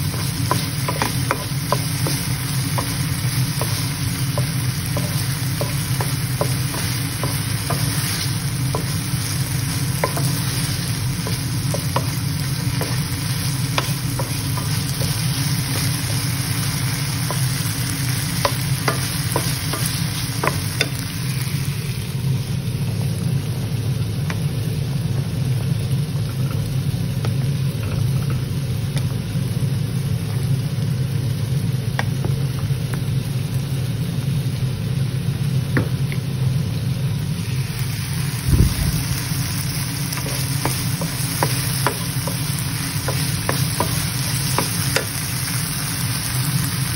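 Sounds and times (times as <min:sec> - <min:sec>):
food sizzling in a frying pan: 0:00.0 - 0:46.9
spatula knocking against pan: 0:00.1 - 0:09.0, 0:10.0 - 0:10.6, 0:18.4 - 0:21.0, 0:40.2 - 0:45.2.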